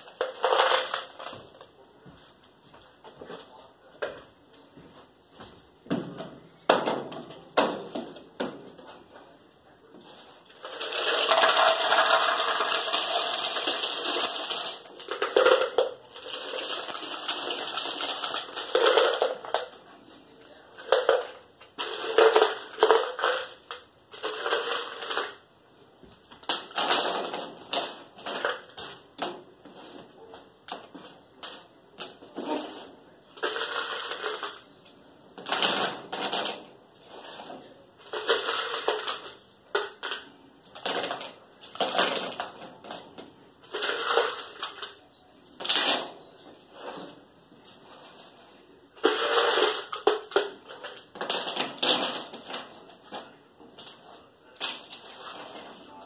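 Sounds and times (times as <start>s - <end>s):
handling knocks and scrapes: 45.5s - 56.0s.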